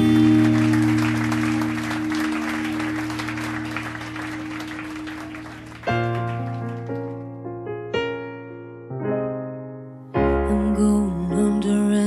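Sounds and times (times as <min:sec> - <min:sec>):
held musical chord: 0:00.0 - 0:06.3
audience applause: 0:00.0 - 0:07.4.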